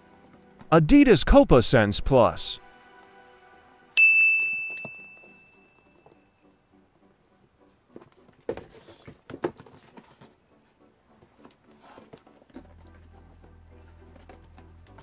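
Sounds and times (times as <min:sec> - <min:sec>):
boots handled in packaging: 0:08.0 - 0:10.4.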